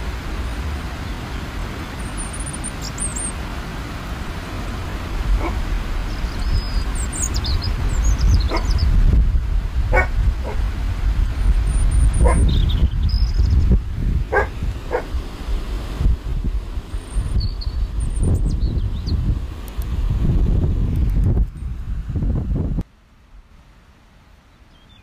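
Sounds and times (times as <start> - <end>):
wind on microphone: 0.0 - 22.9
dog barking: 5.4 - 5.6, 8.5 - 8.7, 9.9 - 10.6, 12.2 - 12.5, 14.3 - 15.1.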